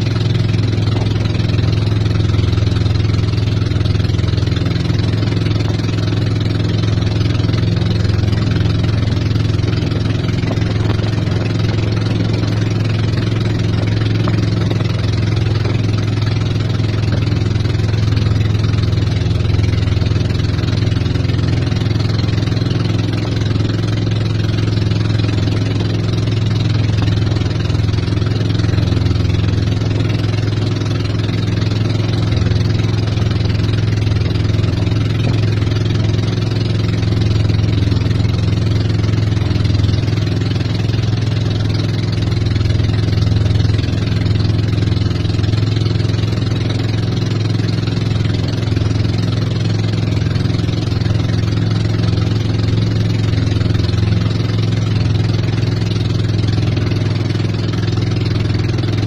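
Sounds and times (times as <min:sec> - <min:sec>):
motorboat engine droning: 0:00.0 - 0:59.0
water rushing along hull: 0:00.0 - 0:59.0.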